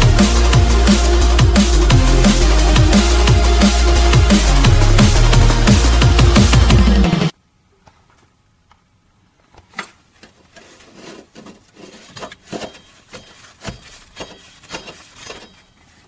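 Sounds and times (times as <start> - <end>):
gloved hand handling engine parts: 9.4 - 16.0.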